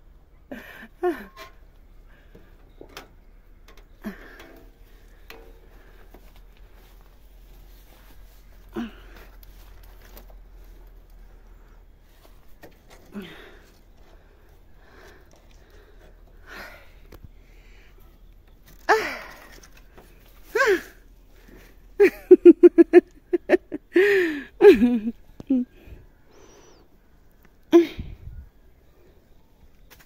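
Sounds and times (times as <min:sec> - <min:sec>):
faint rustling: 0:01.2 - 0:22.0.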